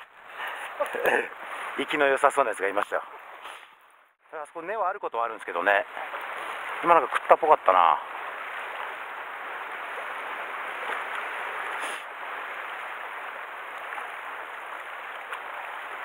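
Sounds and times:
sea surf on rocky shore: 0:05.3 - 0:16.0.

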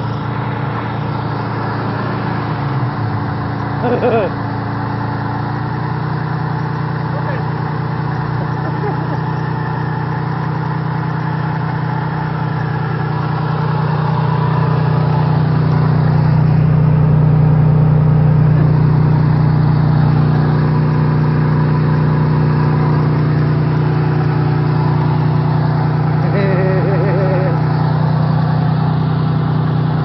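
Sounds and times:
off-road vehicle engine running: 0:00.0 - 0:30.0.

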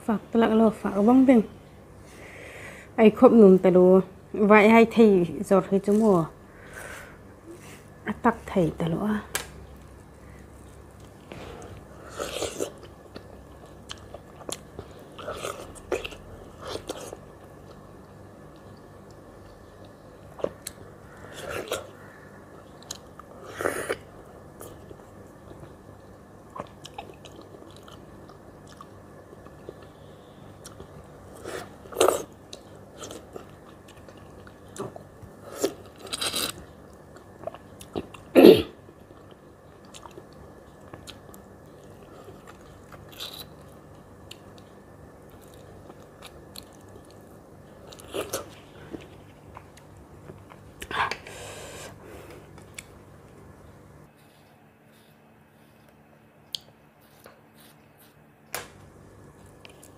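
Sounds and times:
biting and chewing mango: 0:38.9 - 0:51.2.

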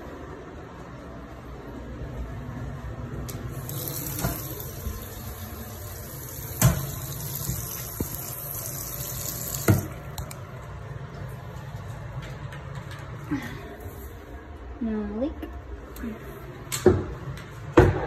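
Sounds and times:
faucet running into sink: 0:03.5 - 0:10.2.

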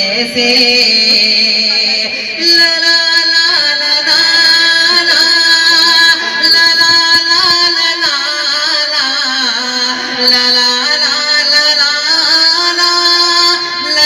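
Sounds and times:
man singing over loudspeaker: 0:00.0 - 0:14.0.

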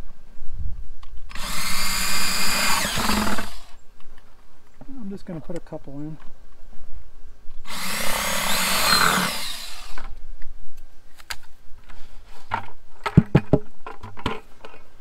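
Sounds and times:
cordless drill boring plastic: 0:01.3 - 0:03.7, 0:07.7 - 0:10.1
plastic bucket knocks and clicks: 0:13.1 - 0:14.4.

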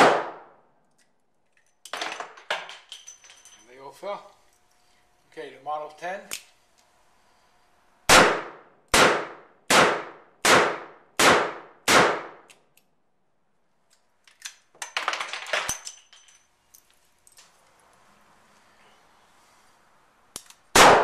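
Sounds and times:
spent cases falling: 0:14.8 - 0:15.9
metallic clicks of revolver cylinder: 0:20.3 - 0:20.6.

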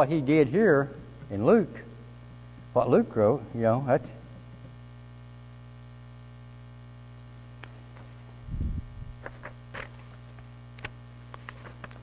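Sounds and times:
electrical mains hum: 0:00.0 - 0:12.0
paper rustling: 0:09.2 - 0:12.0.

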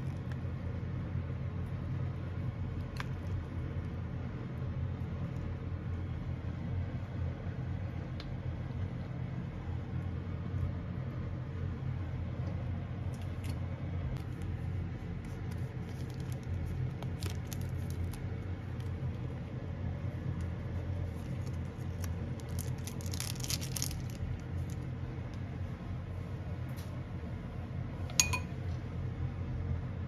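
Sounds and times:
cooktop low hum: 0:00.0 - 0:30.0
seasoning packet crinkling: 0:15.3 - 0:19.0, 0:20.9 - 0:24.9.

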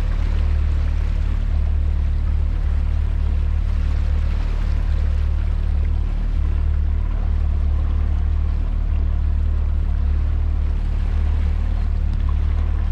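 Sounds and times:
outboard motor running: 0:00.0 - 0:12.9
water rushing past hull: 0:00.0 - 0:12.9.

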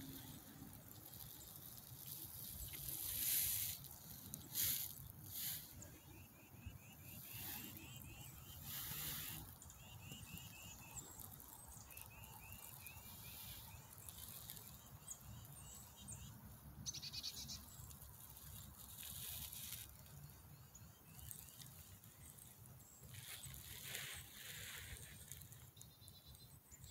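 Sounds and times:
faint bird chirps: 0:00.0 - 0:26.9
bird trill: 0:05.4 - 0:18.0.

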